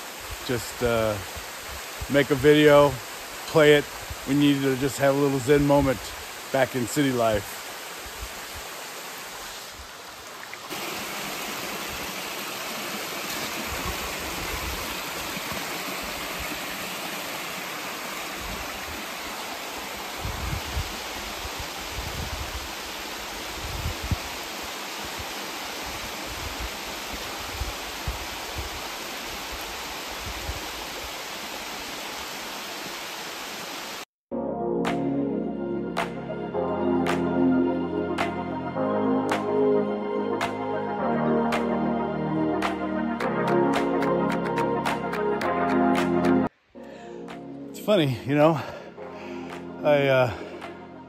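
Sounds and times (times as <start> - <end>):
waterfall rushing: 0.0 - 34.0, 47.0 - 50.8.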